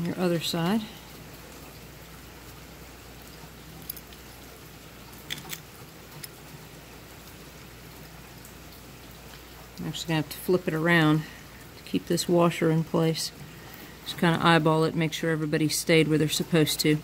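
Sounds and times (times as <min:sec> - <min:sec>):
small bolts and washers clicking: 0:05.3 - 0:06.4.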